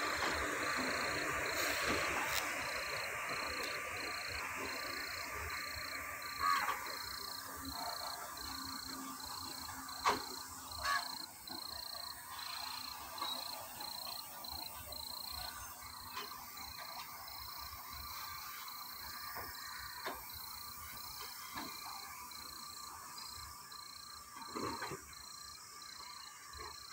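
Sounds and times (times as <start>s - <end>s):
high insect chirp: 0.0s - 26.9s
crows cawing: 6.4s - 6.9s, 10.8s - 11.2s.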